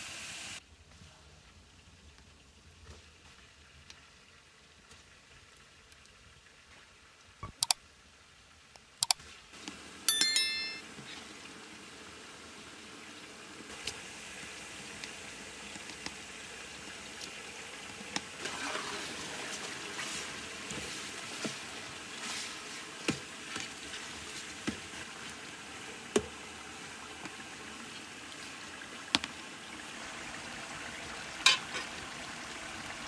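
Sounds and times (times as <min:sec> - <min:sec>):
chicken sizzling in oil: 0:00.0 - 0:00.6, 0:10.8 - 0:33.0
metal cookware clang: 0:31.5 - 0:31.9.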